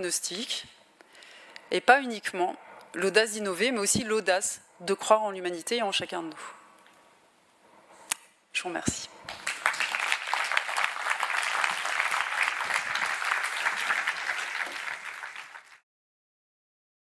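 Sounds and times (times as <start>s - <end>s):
audience applauding: 9.3s - 15.8s.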